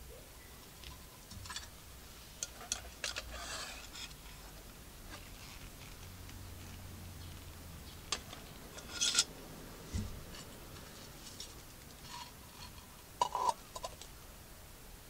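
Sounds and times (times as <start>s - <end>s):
metal tin clinking and scraping: 0.8s - 1.8s, 2.4s - 4.4s, 8.1s - 9.3s, 10.3s - 14.1s.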